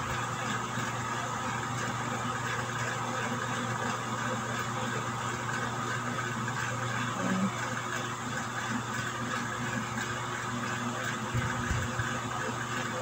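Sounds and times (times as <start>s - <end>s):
low machine hum: 0.0s - 13.0s.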